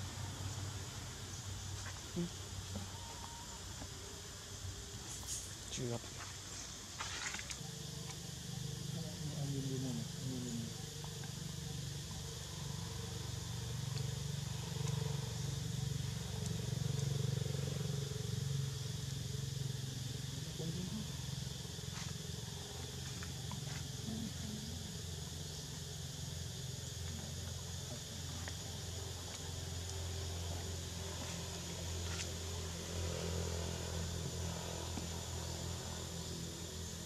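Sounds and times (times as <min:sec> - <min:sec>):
high even hiss: 0:04.9 - 0:06.8.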